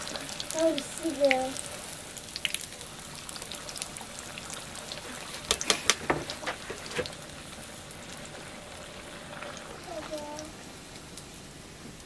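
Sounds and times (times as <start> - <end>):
dough sizzling in hot oil: 0.0 - 12.0
crackling pops: 10.4 - 11.3.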